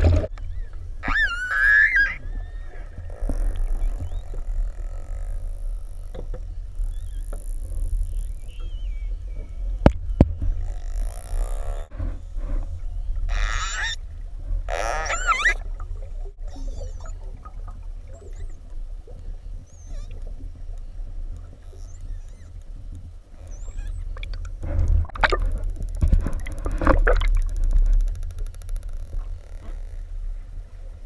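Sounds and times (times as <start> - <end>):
low underwater rumble: 0.0 - 31.0
wavering marine mammal calls: 0.4 - 6.2, 13.0 - 14.0, 14.7 - 15.8, 16.4 - 22.7, 23.3 - 24.3.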